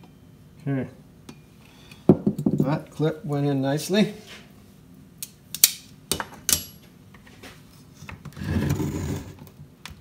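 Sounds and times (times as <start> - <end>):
housing scraping and rubbing: 8.3 - 9.4.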